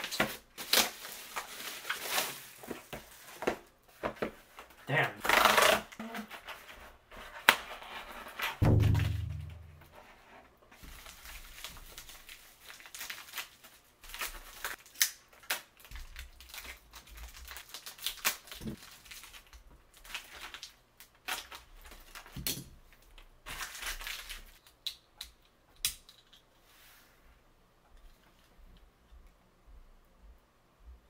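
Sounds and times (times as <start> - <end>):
plastic packaging crinkling and tearing: 0.0 - 3.5, 5.2 - 6.4, 10.8 - 24.9.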